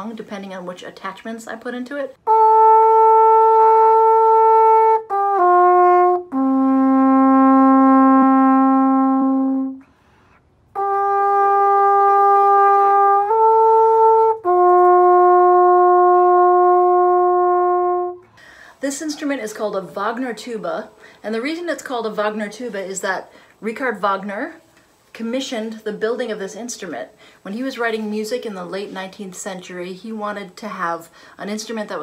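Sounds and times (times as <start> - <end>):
alphorn slow melody: 2.2 - 18.4.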